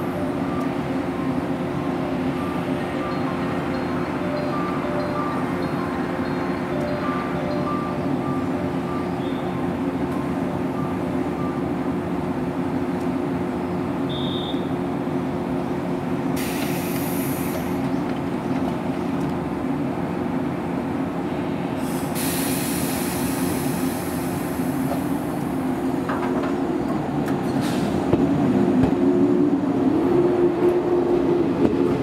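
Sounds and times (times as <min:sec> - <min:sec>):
train pulling away: 0:00.0 - 0:13.0, 0:16.3 - 0:19.0, 0:21.7 - 0:32.0
electric train hum: 0:00.0 - 0:32.0
air hissing: 0:16.4 - 0:17.8, 0:21.8 - 0:25.2.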